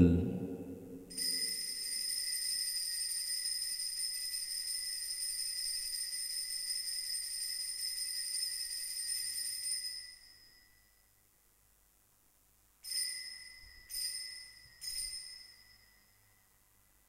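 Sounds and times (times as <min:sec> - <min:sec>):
altar bell ringing: 0:01.1 - 0:11.1, 0:12.8 - 0:16.6.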